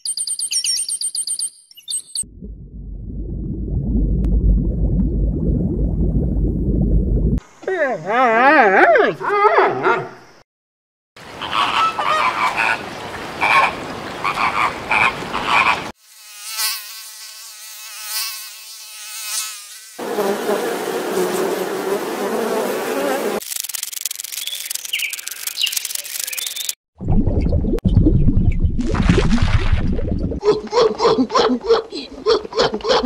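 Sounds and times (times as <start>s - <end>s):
flamingos honking: 11.4s - 15.9s.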